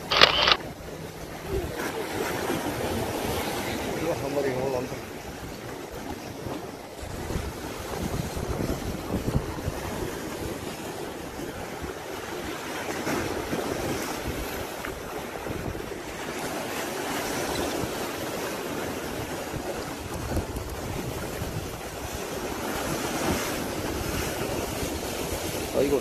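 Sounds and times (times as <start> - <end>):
sea waves: 0.0 - 26.0
wind buffeting microphone: 5.3 - 12.4, 17.1 - 26.0.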